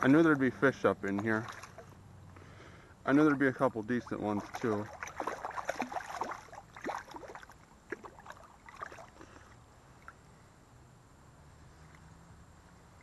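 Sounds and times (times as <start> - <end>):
creek water splashing: 0.0 - 10.3
faint steady low hum: 0.0 - 13.0.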